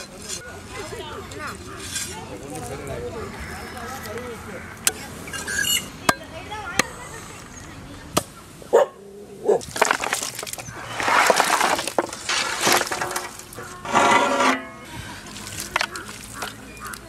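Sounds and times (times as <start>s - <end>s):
raw meat tumbling into metal pot: 9.6s - 14.7s.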